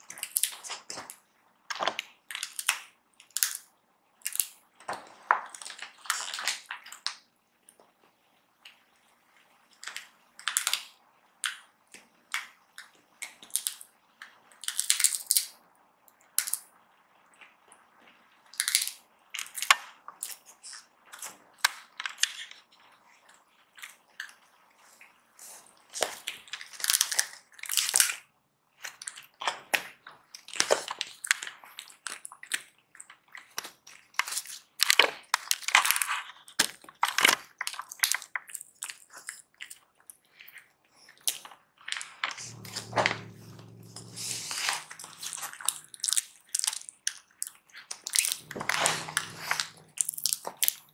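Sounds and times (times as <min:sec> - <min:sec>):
kitten crunching dried fish: 0:25.1 - 0:50.9.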